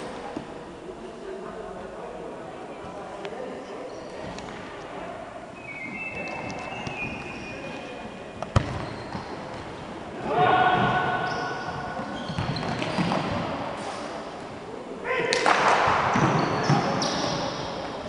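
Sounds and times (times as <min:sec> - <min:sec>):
ball strike: 0:08.4 - 0:09.3.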